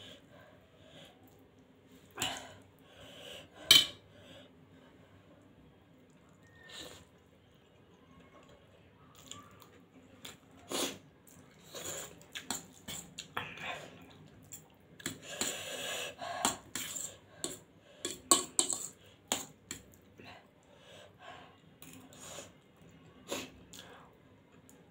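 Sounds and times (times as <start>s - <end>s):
chewing: 6.0s - 15.5s
metal fork scraping on plate: 18.1s - 19.0s.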